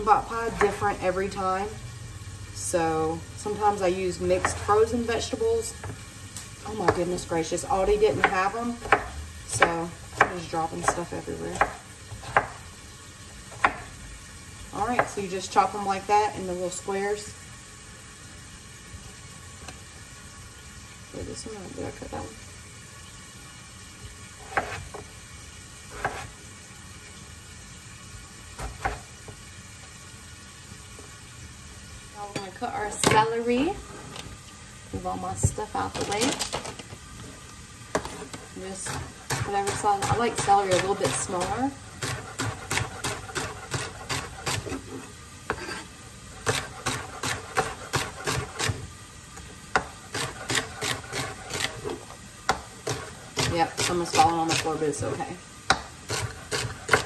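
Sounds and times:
chicken sizzling in pot: 0.0s - 57.0s
knife chopping on wooden board: 8.1s - 12.6s, 13.5s - 13.9s, 24.5s - 24.9s, 26.0s - 26.3s, 28.6s - 29.0s, 38.9s - 44.8s, 46.4s - 48.8s, 55.7s - 57.0s.

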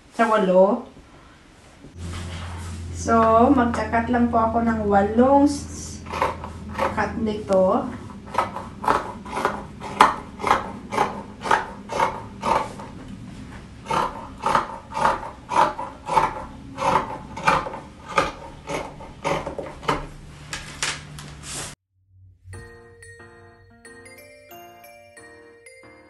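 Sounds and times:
scissors snipping fabric: 13.9s - 20.1s.

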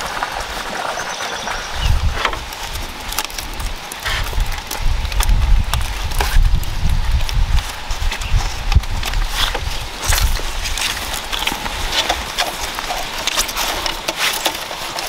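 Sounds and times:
bamboo poles clicking and knocking: 2.1s - 15.0s.

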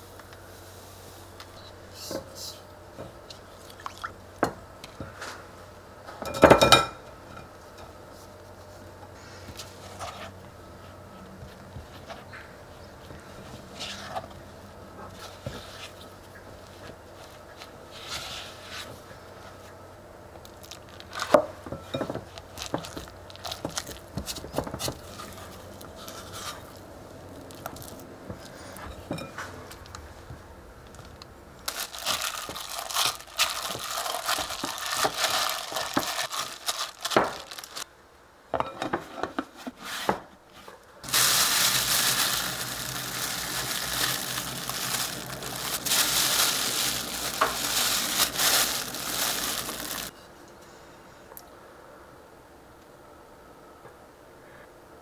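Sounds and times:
plastic bag crinkling: 20.4s - 21.4s, 22.0s - 26.8s, 27.4s - 28.1s, 30.9s - 37.9s, 41.0s - 50.1s
gloved hand kneading dough: 22.1s - 28.6s, 31.6s - 37.9s, 41.0s - 50.1s.

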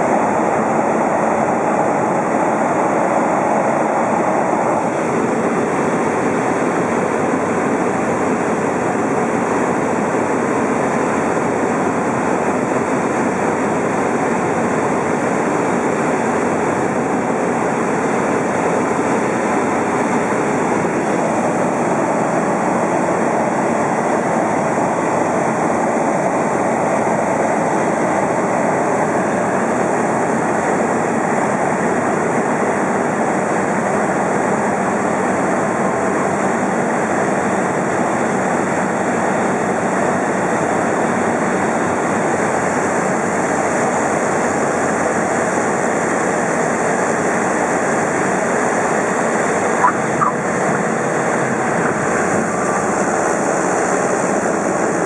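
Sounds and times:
wind rush: 0.0s - 8.0s, 48.7s - 55.0s
aircraft engine and propeller drone: 0.0s - 55.0s.

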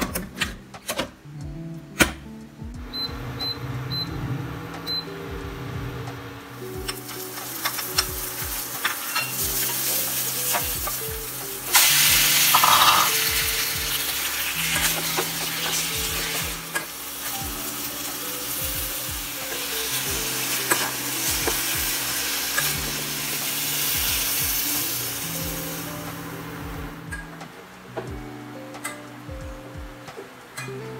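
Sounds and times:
chicken sizzling in a pot: 6.3s - 26.9s.

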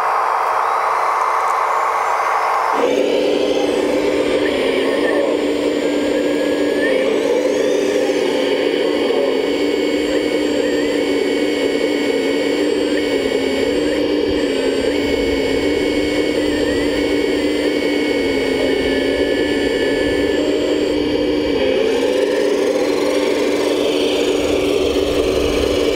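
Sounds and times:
toy excavator hydraulic whine: 0.0s - 25.9s.

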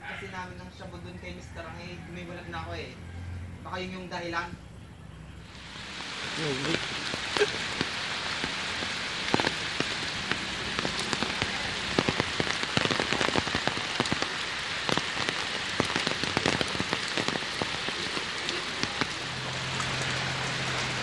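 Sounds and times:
steady rain: 0.3s - 21.0s
raindrops hitting close by: 5.3s - 21.0s.

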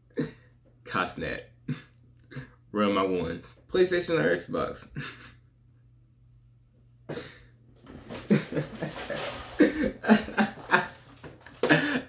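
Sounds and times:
man laughing and breathing hard: 4.9s - 5.5s, 8.1s - 12.0s.

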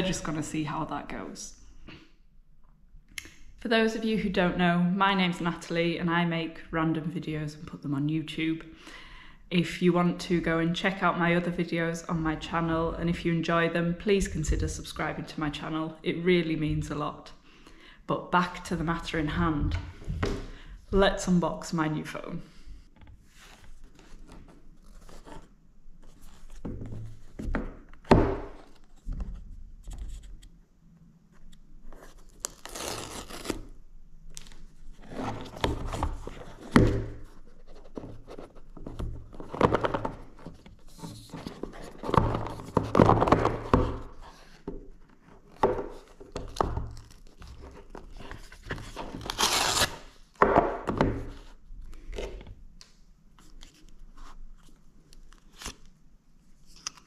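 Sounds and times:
paper seal ripping: 32.3s - 33.7s, 49.1s - 50.1s.

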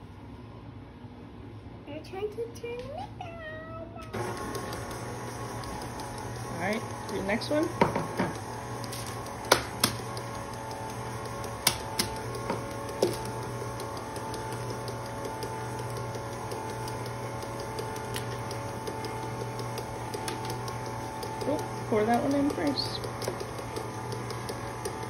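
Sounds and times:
stand mixer running: 4.1s - 25.0s
sharp clicks and taps: 7.9s - 25.0s.

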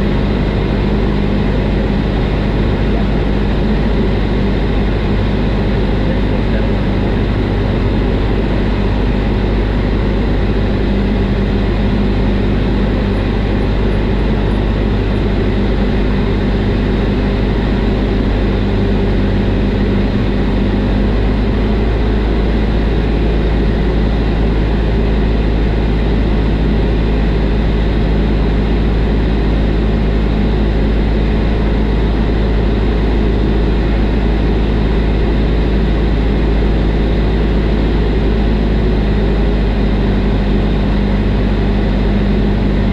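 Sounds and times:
light aircraft engine droning: 0.0s - 42.9s.

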